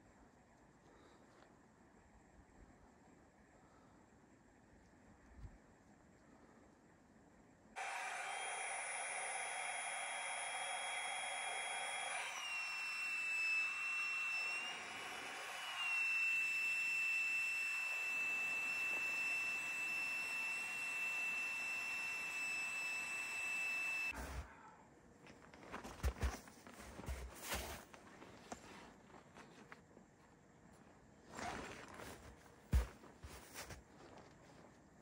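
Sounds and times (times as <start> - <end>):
small electric motor whining: 7.8 - 24.2.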